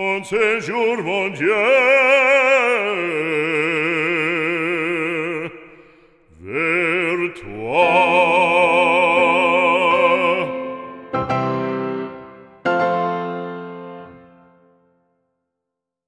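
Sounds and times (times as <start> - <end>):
operatic singing with vibrato: 0.0 - 11.5.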